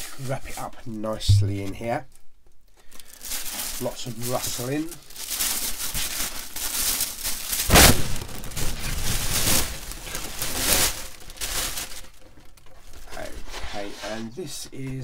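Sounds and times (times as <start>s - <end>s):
paper wrapping rustling: 3.1s - 13.5s.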